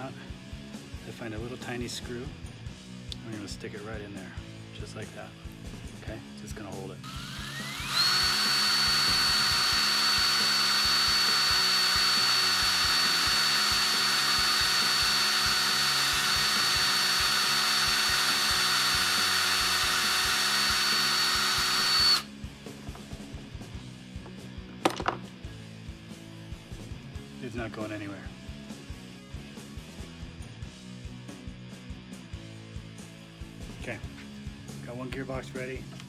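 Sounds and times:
cordless drill whining: 0:07.0 - 0:22.4.

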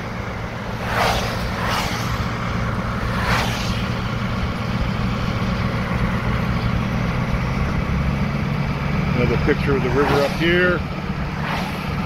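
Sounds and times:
vehicle cabin road rumble: 0:00.0 - 0:12.0
brief whooshes: 0:00.6 - 0:05.1, 0:09.9 - 0:12.0.

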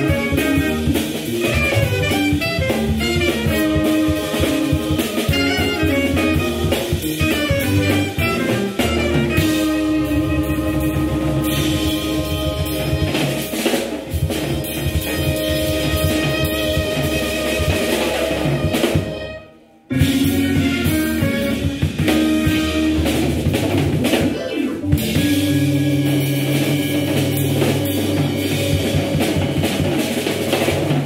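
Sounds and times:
electric guitar: 0:00.0 - 0:19.2, 0:19.9 - 0:31.0
alto saxophone quick notes: 0:00.0 - 0:23.7
drum kit: 0:00.0 - 0:31.0
organ: 0:00.0 - 0:31.0.

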